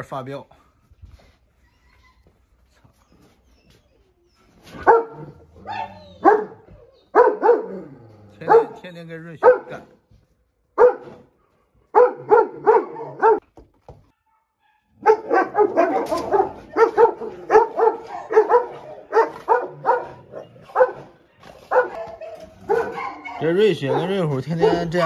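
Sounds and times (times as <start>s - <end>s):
large dog barking: 4.7s - 10.0s, 10.7s - 13.4s, 14.3s - 25.0s.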